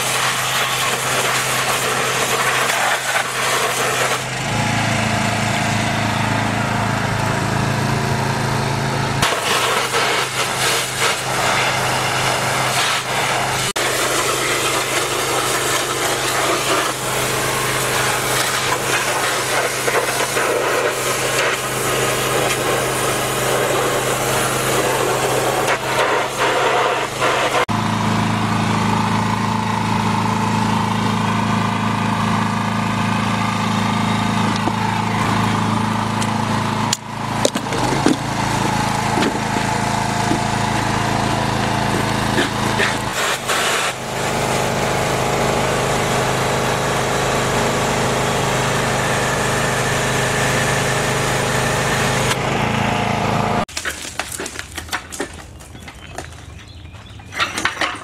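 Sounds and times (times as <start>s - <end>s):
water jet hissing on metal: 0.0s - 4.3s, 9.2s - 27.7s, 42.7s - 44.3s
pressure washer engine running: 0.0s - 53.7s.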